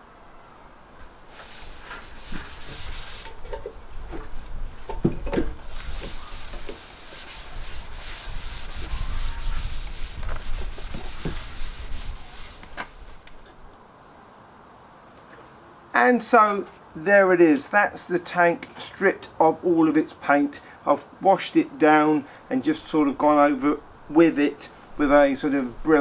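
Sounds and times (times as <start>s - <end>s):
scouring pad scrubbing metal: 1.4s - 3.6s, 5.6s - 12.8s.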